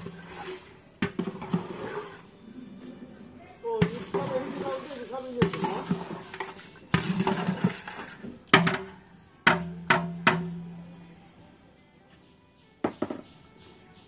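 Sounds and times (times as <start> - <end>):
metal spatula scraping pot: 0.0 - 9.0.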